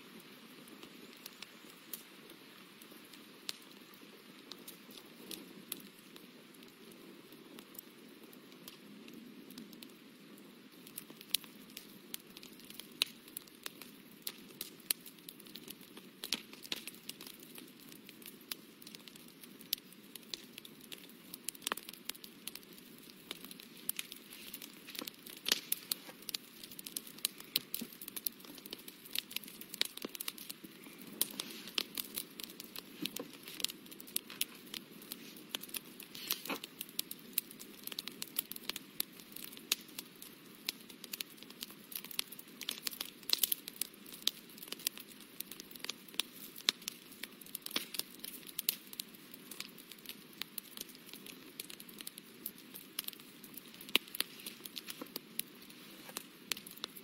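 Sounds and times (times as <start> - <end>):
faint hiss: 23.0 - 36.8.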